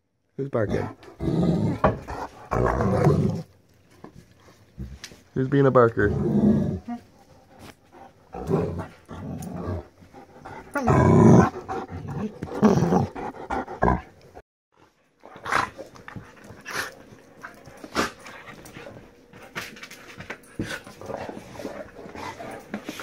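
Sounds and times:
dogs growling: 0.6 - 3.6, 5.9 - 14.4, 15.2 - 19.1, 20.6 - 23.0.

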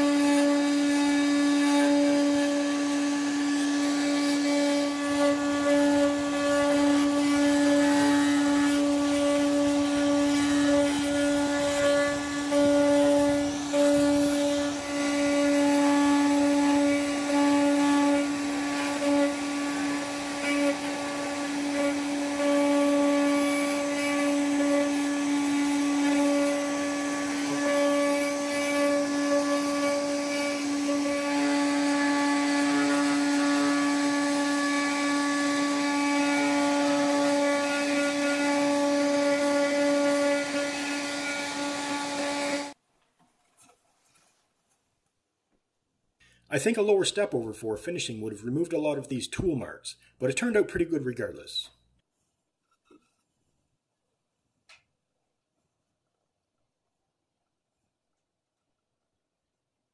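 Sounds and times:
bit carving plywood: 0.0 - 42.8
cnc router spindle whine: 0.0 - 42.8.

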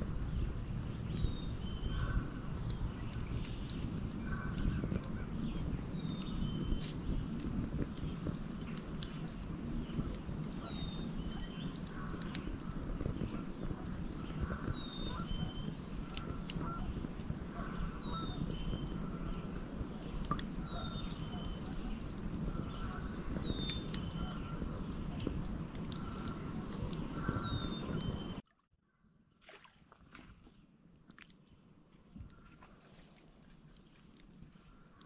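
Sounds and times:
wood fire crackling: 0.0 - 28.4, 30.6 - 35.0.

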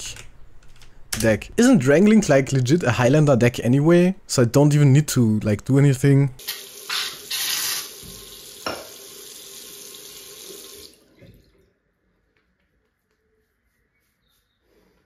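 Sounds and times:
tap running into sink: 6.9 - 9.0.

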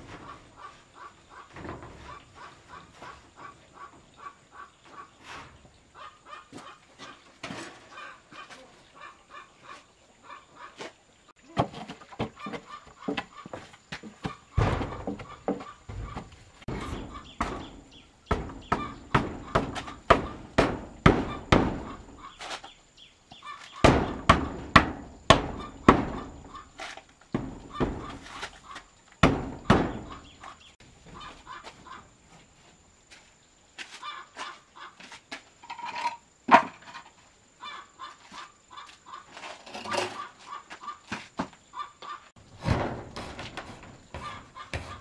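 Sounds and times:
hand tool striking wood: 13.9 - 22.6, 23.7 - 30.3, 42.6 - 45.0.

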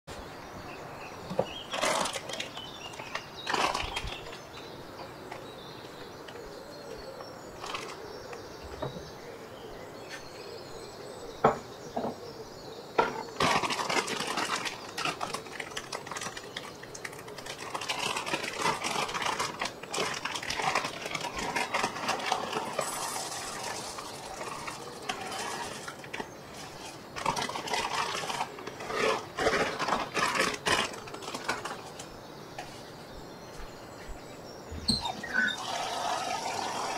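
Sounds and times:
dried beans rattling: 1.3 - 4.8, 13.1 - 32.2
plastic bag crinkling: 1.5 - 4.6, 13.4 - 32.1
beans pouring into glass bowl: 22.6 - 25.9.

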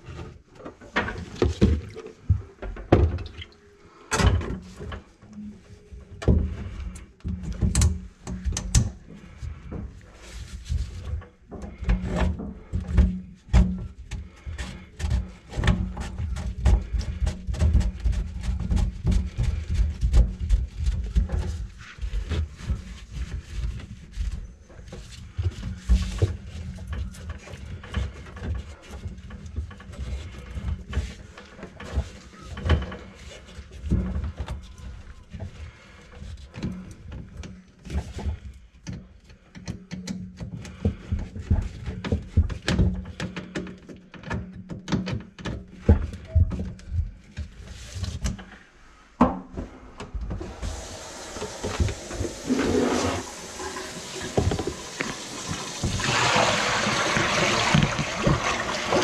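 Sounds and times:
drain auger cable rattling in pipes: 50.2 - 59.0.

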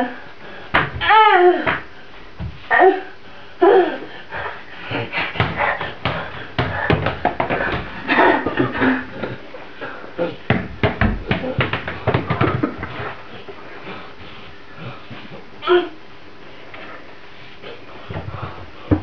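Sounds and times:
knocks on tiled floor: 5.4 - 7.9, 10.5 - 12.8.

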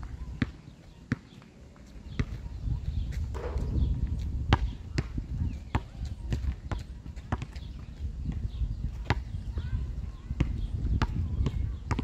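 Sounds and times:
basketball bouncing on hard court: 3.3 - 5.1.

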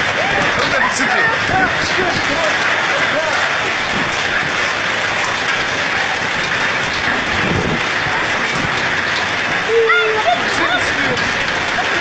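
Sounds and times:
heavy rain: 0.0 - 12.0
low rumble: 0.0 - 12.0
wind roaring: 0.0 - 12.0.

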